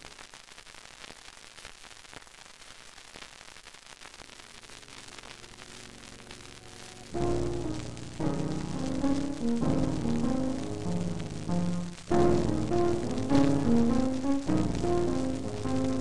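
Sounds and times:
faint crackles: 0.0s - 16.0s
static hiss: 0.0s - 16.0s.

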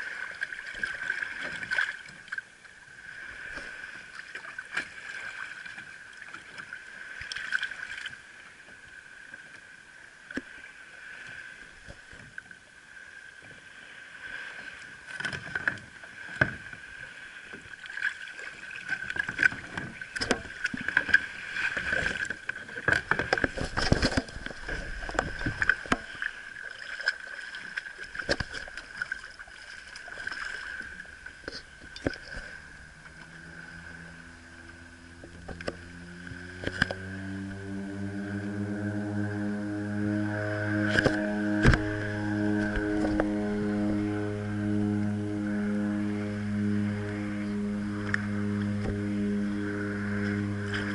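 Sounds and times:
water splashing around kayak: 0.0s - 50.9s
steady high whine: 32.3s - 50.9s.

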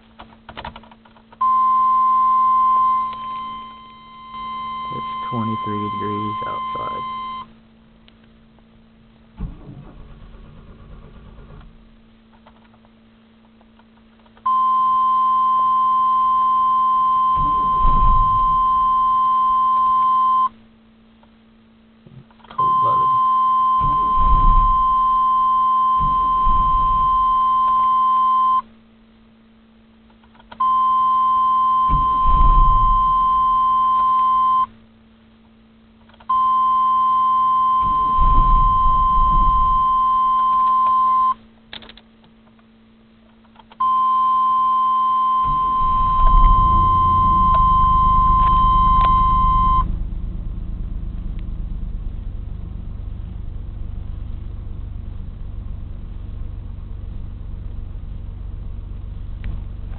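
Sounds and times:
high warning beep: 1.4s - 7.5s, 14.5s - 20.6s, 22.6s - 28.7s, 30.6s - 34.7s, 36.3s - 41.4s, 43.8s - 49.8s
starter cranking engine: 9.4s - 11.8s.

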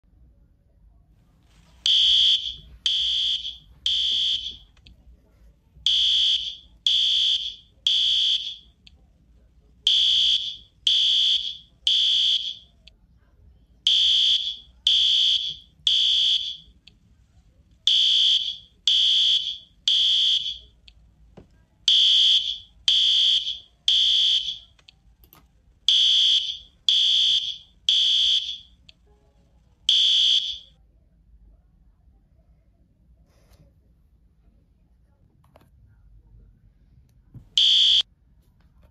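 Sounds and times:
smoke alarm beeping: 1.8s - 4.7s, 5.9s - 8.8s, 9.9s - 12.8s, 13.9s - 16.8s, 17.9s - 20.8s, 21.9s - 24.8s, 25.9s - 28.8s, 29.9s - 30.7s, 37.6s - 38.0s.

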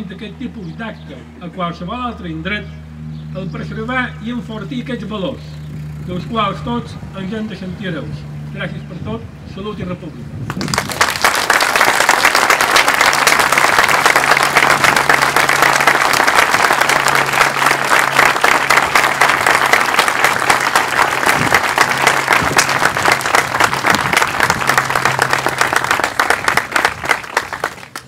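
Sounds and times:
crowd applauding: 10.5s - 28.0s.

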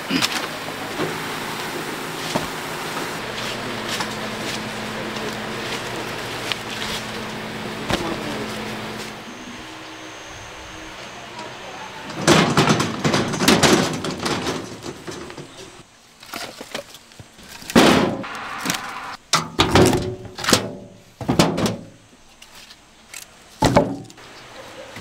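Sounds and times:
wheelbarrow rattling: 0.0s - 9.3s, 11.4s - 21.9s
logs dropped into metal tray: 12.1s - 15.6s.

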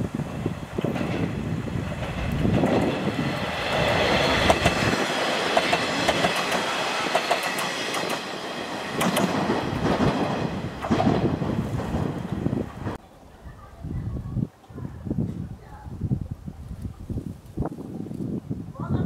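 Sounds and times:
diesel railcar passing: 0.0s - 13.4s
wheels clacking over rail joints: 0.2s - 13.0s.

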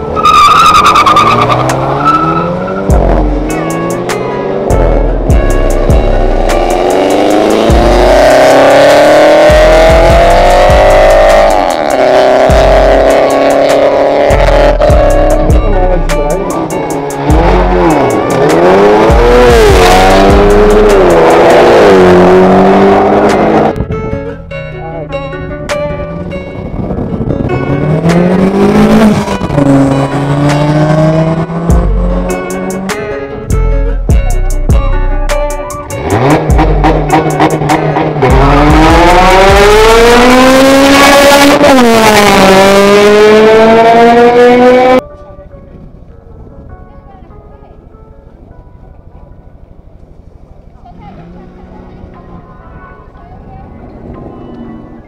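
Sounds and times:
cars accelerating hard: 0.0s - 5.2s, 6.3s - 15.6s, 16.6s - 23.8s, 27.0s - 33.1s, 35.9s - 45.0s.

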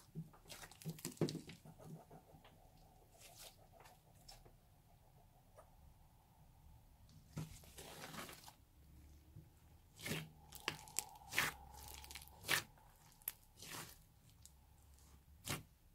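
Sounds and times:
hands kneading beaded slime: 9.8s - 15.9s
crackling pops and crunches: 10.0s - 15.7s.

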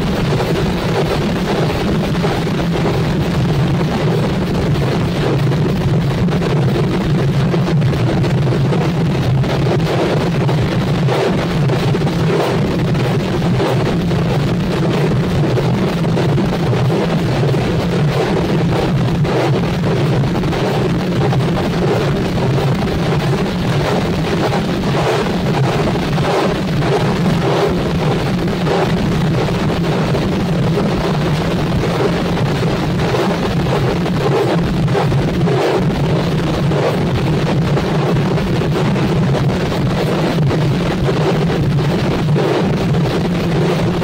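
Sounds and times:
drum band playing loudly: 34.3s - 36.9s.

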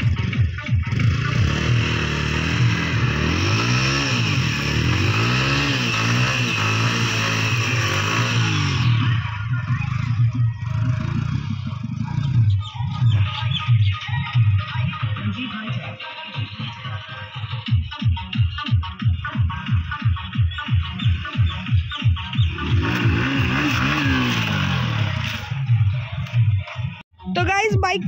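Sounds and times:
motorcycle engine revving: 0.0s - 13.7s, 18.8s - 27.0s.

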